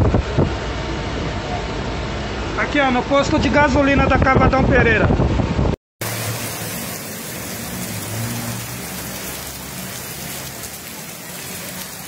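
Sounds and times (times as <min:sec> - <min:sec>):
heavy rain: 0:06.0 - 0:12.0
rushing floodwater: 0:06.0 - 0:12.0.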